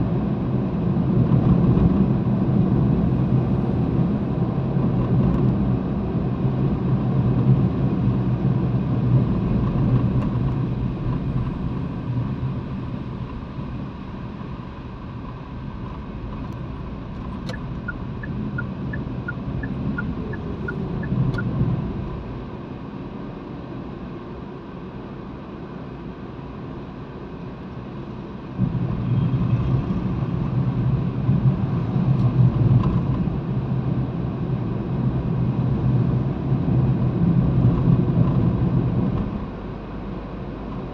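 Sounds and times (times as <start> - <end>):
car engine and tyre rumble: 0.0 - 40.9
two-pitch high beeps: 17.5 - 21.5.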